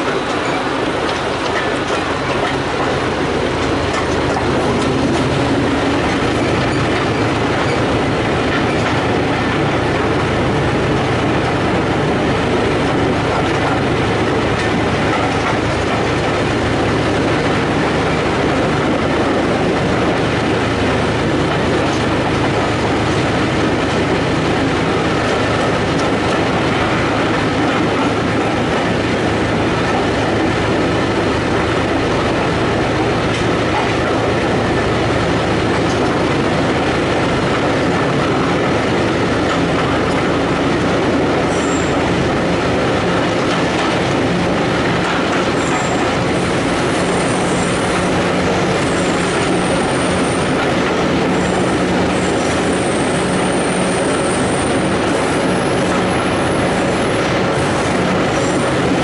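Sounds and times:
train wheels rolling on rails: 0:00.0 - 0:59.0.

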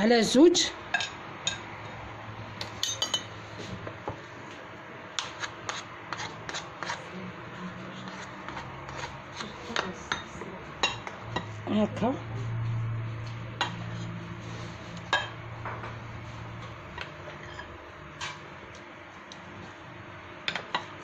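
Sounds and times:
spoon scraping glass bowl: 0:05.2 - 0:09.9, 0:17.2 - 0:18.4.

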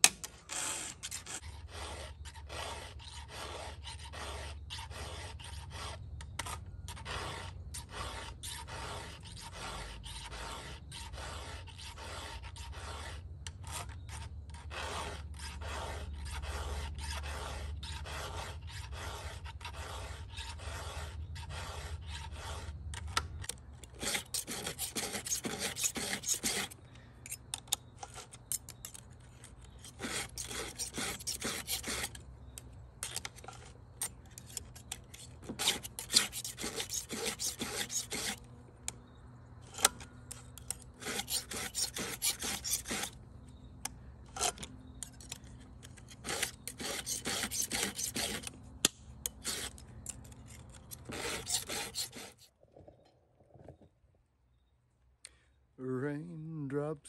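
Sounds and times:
flat file strokes: 0:00.5 - 0:22.8, 0:23.9 - 0:27.4, 0:29.8 - 0:32.2, 0:34.4 - 0:38.5, 0:39.7 - 0:43.2, 0:46.0 - 0:48.6, 0:49.3 - 0:52.5
round file rasping on chainsaw chain: 0:00.5 - 0:38.5, 0:39.6 - 0:43.2, 0:44.2 - 0:48.6, 0:49.2 - 0:52.5.

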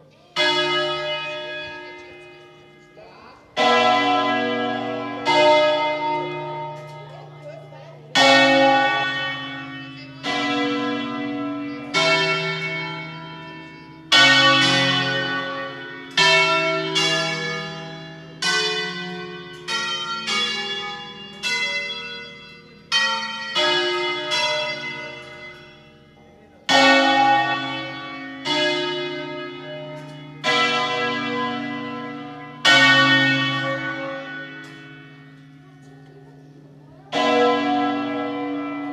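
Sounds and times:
church bells playing a melody: 0:00.0 - 0:38.9.

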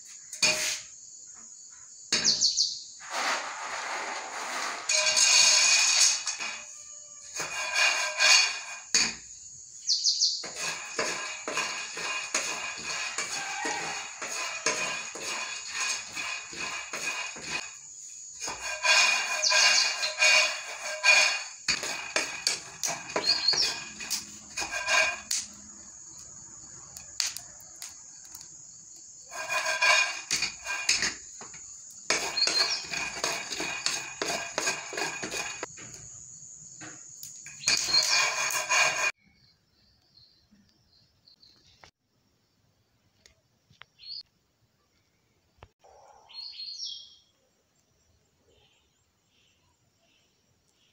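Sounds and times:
peanuts rattling in a metal pan: 0:04.8 - 0:08.9, 0:10.5 - 0:17.7.

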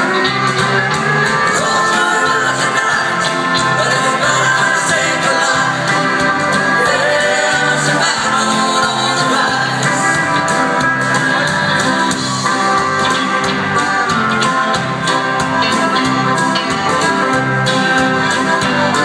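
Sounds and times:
instrumental accompaniment: 0:00.0 - 0:19.0
person singing: 0:01.3 - 0:12.3.

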